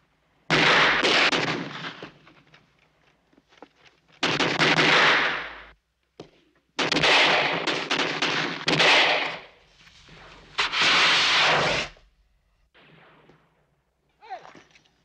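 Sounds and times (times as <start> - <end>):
firework rockets whooshing: 9.1 - 12.1.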